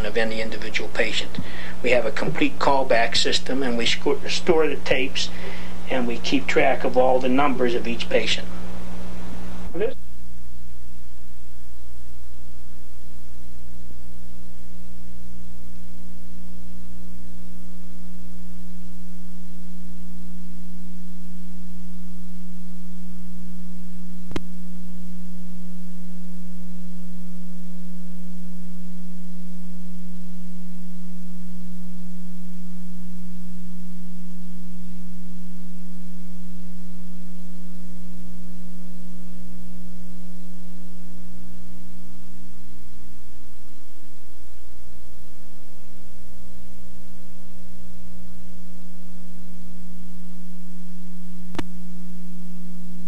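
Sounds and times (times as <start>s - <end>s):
low electrical hum: 0.0s - 53.0s
single click: 51.5s - 51.7s.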